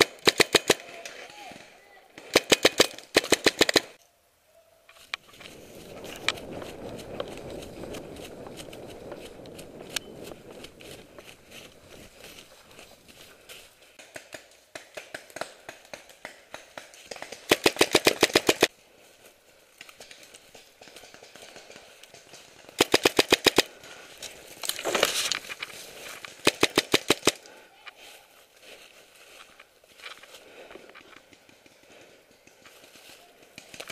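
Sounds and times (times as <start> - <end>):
paintball marker firing: 2.2 - 4.0, 14.0 - 18.7, 20.8 - 23.7, 26.3 - 27.5.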